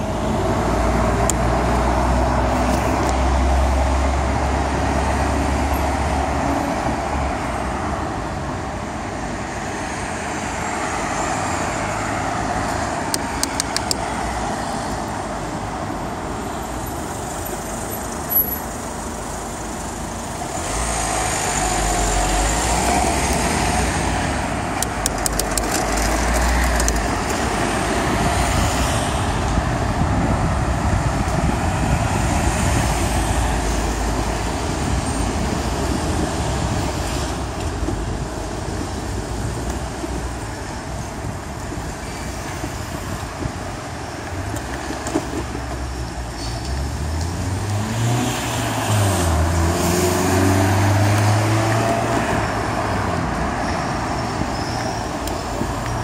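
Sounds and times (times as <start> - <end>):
road noise: 0.0 - 56.0
street traffic: 0.0 - 56.0
wind buffeting microphone: 21.6 - 45.8.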